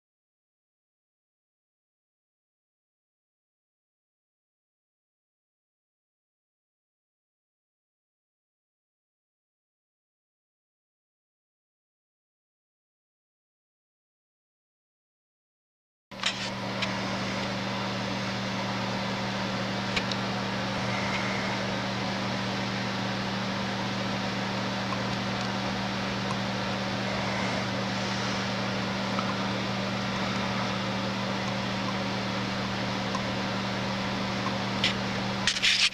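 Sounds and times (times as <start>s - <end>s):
lathe motor humming and whirring: 16.2s - 35.9s.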